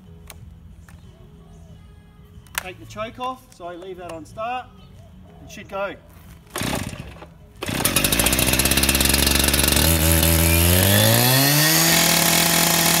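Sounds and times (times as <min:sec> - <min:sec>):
saw engine starting and running: 0:06.5 - 0:13.0.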